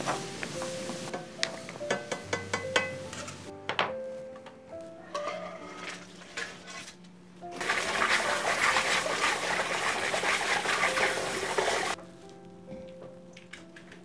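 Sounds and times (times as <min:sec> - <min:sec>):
tap water splashing through strainer: 0:07.6 - 0:12.0.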